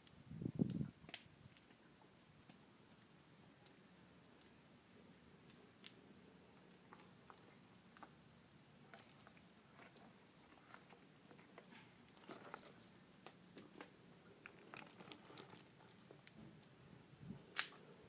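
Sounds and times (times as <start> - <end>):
gravel pebbles clicking and scraping: 5.4 - 16.8.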